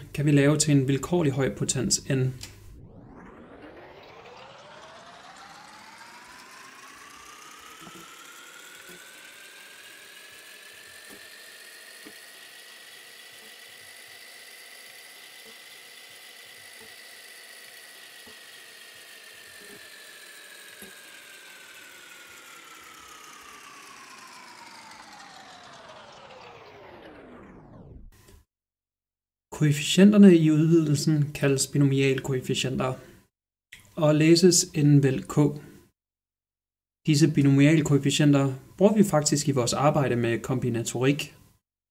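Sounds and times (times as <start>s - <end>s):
whirring fast-forward effect: 1.6s - 28.5s.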